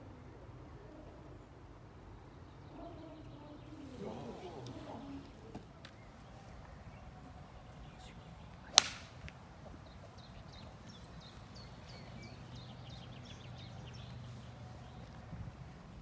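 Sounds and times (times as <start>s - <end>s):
golf club striking ball: 8.7s - 9.3s.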